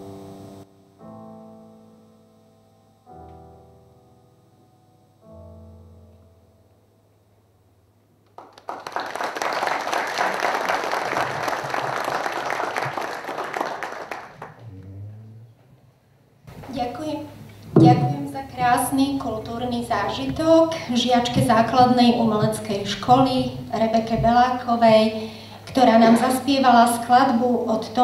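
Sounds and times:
slow piano chords: 0.0s - 8.8s, 14.0s - 16.7s
audience applause: 8.3s - 14.8s.

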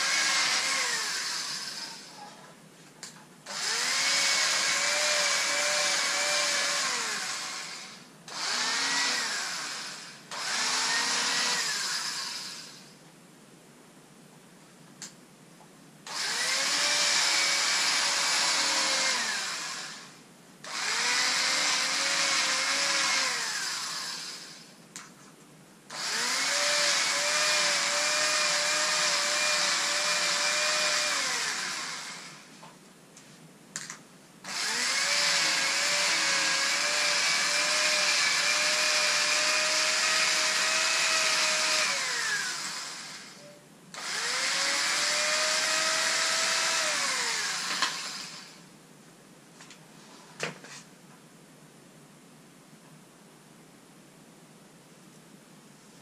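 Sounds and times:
electric fabric cutter whining: 0.0s - 2.2s, 3.5s - 12.9s, 16.1s - 24.7s, 25.9s - 32.6s, 34.5s - 48.6s.

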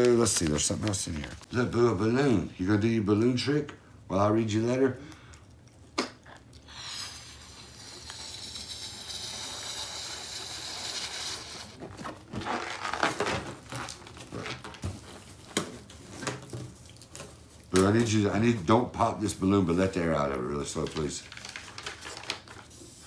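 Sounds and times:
breath blowing up balloon: 6.0s - 11.8s.

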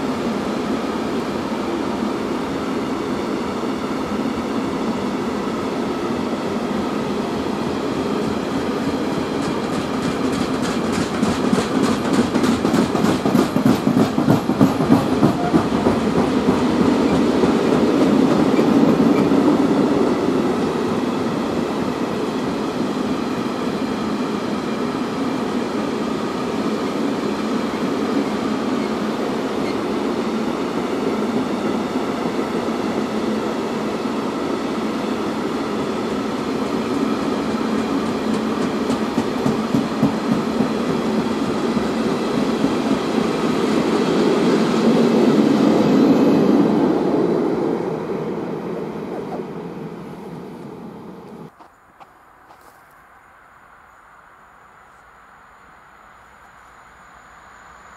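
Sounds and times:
train wheels rumbling on rails: 0.0s - 51.8s.

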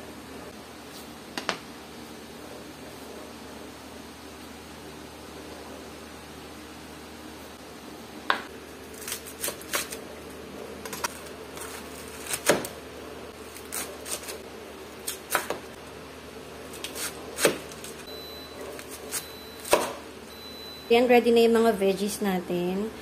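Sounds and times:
knife chopping on wooden board: 19.6s - 20.0s.

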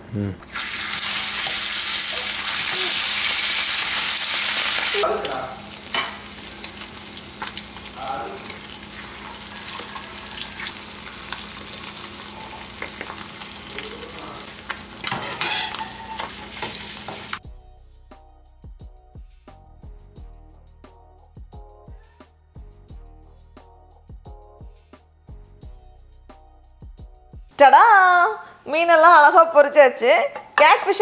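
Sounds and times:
fish sizzling in hot oil: 0.5s - 17.4s
metal spatula scraping and tapping: 15.0s - 16.8s.

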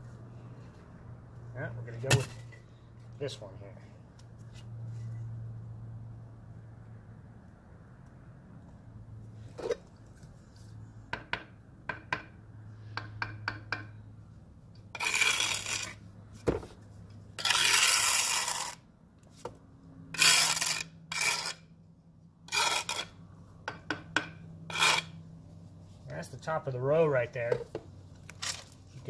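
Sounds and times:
trowel scraping mortar: 14.9s - 16.0s, 17.4s - 18.8s, 20.2s - 21.7s, 22.5s - 23.2s, 24.7s - 25.2s.

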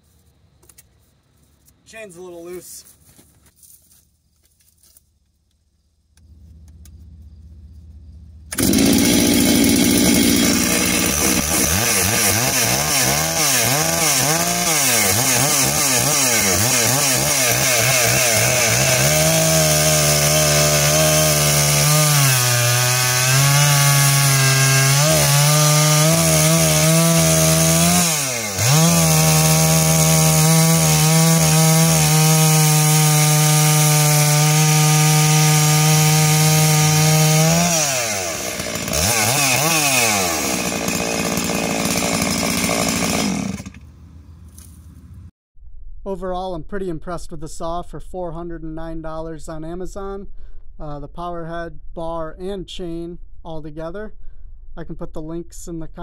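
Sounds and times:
chainsaw revving: 8.5s - 44.0s
chainsaw cutting log: 8.5s - 44.9s.

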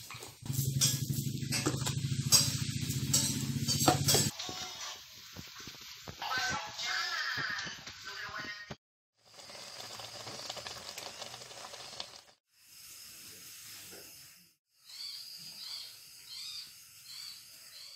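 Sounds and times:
wok sizzling: 0.0s - 8.6s, 9.2s - 14.5s.

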